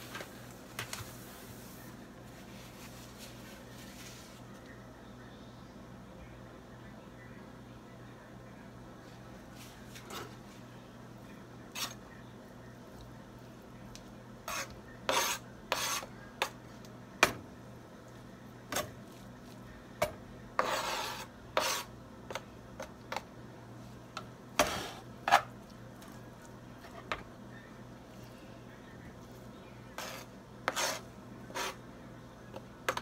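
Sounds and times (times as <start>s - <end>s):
knife scraping cutting board: 11.7s - 12.0s, 14.5s - 16.1s, 20.6s - 21.9s, 24.6s - 25.5s, 30.0s - 31.8s.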